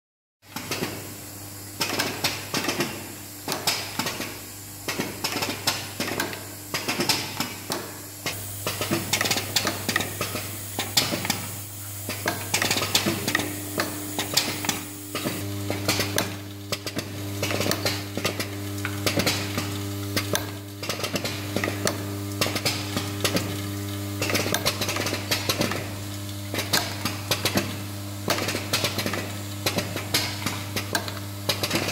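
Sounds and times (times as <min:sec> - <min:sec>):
bowl feeder humming: 0:07.5 - 0:28.3.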